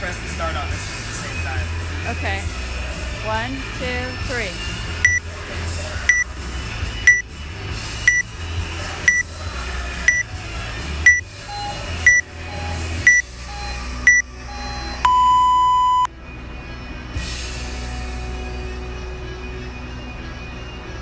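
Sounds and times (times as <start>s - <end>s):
fainter lower timer beeps: 5.0s - 5.3s, 6.1s - 6.3s, 8.1s - 8.3s, 9.1s - 9.3s, 10.1s - 10.3s, 11.0s - 16.1s
timer beeping: 5.0s - 5.3s, 6.1s - 6.3s, 8.1s - 8.3s, 9.1s - 9.3s, 10.1s - 10.3s, 11.0s - 16.1s.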